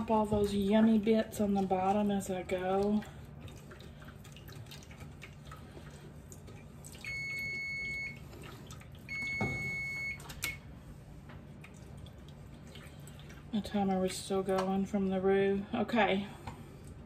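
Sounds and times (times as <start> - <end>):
kitchen timer beeping: 7.0 - 8.2, 9.1 - 10.6.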